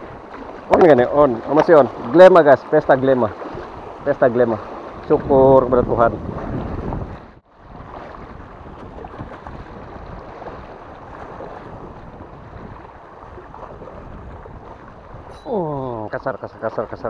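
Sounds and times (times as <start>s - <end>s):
wind on microphone: 3.4s - 16.7s
small waves washing against rocks: 6.2s - 15.3s.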